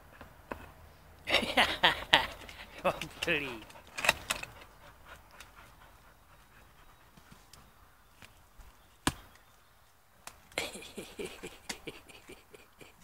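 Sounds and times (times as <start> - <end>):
dogs digging and scraping: 2.2 - 7.8.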